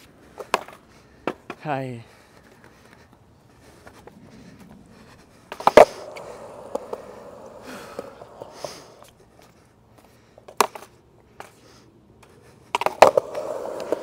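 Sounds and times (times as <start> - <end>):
skateboard wheels rolling: 0.0 - 14.0
skateboard clack on concrete: 0.4 - 1.7, 5.5 - 9.2, 10.4 - 11.6, 12.7 - 14.0.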